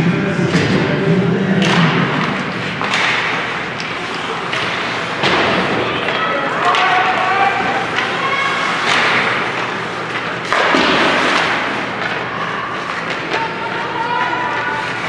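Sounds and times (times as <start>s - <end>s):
rink and crowd noise: 0.0s - 15.0s
spectators shouting: 3.6s - 10.0s, 11.8s - 15.0s.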